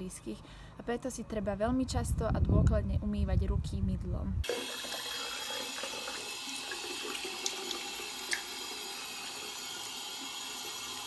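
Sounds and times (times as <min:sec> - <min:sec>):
tap water running into sink: 0:04.4 - 0:11.0.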